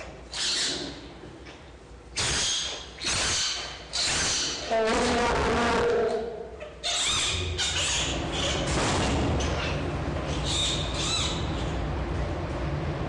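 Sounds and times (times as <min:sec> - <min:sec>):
steady low hum: 0:00.0 - 0:13.0
panda cub squealing: 0:00.3 - 0:01.0, 0:02.2 - 0:04.7, 0:06.6 - 0:08.6, 0:09.4 - 0:11.6.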